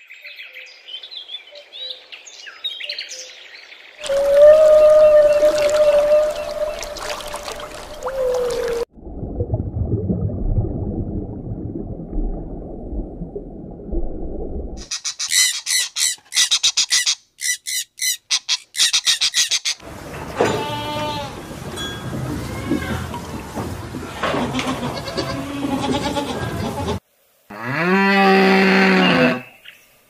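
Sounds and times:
whale call falling tone: 4.0 - 8.9
bird calling rapid high notes: 14.8 - 19.8
goat bleating: 20.5 - 21.4, 24.4 - 27.0.

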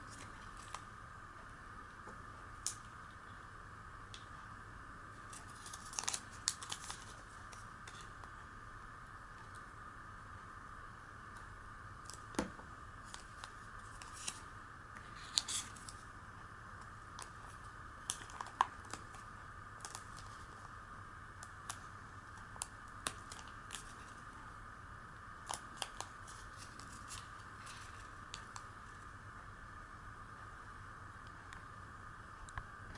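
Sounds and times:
paper rustling and clicking: 5.3 - 8.1.

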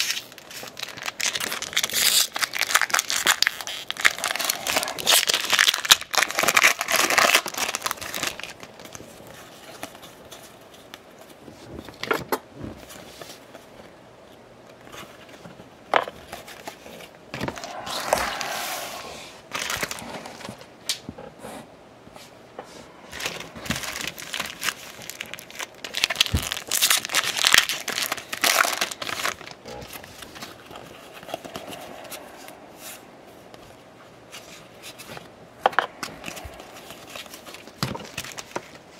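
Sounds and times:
foil wrappers crinkling and tearing: 0.0 - 10.5, 23.2 - 30.8, 37.2 - 38.9.

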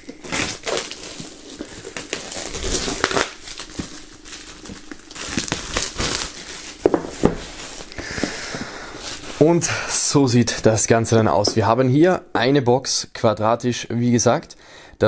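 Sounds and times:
plastic shrink-wrap crinkling: 0.0 - 9.5.

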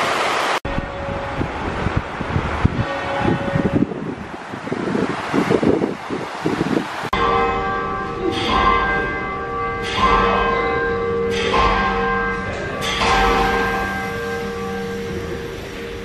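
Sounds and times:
large tower bells ringing: 0.6 - 4.3, 7.1 - 16.0.

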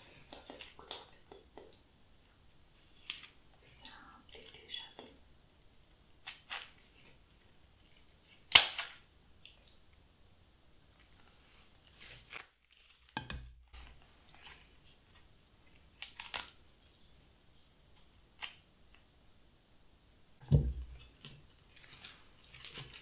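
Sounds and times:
stems and paper rustling: 2.8 - 5.1, 11.5 - 17.2, 20.7 - 23.0.

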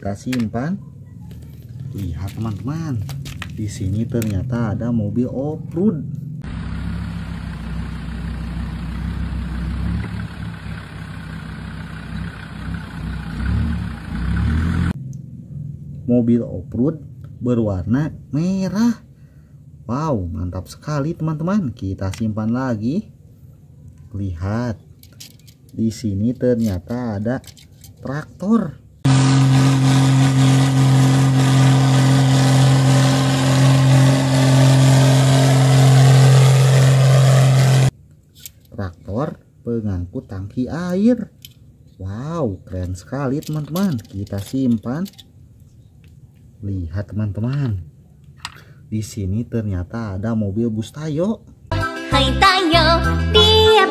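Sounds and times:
engine idling hum: 5.2 - 17.3, 29.1 - 37.9
vehicle engine idling: 6.0 - 16.1.

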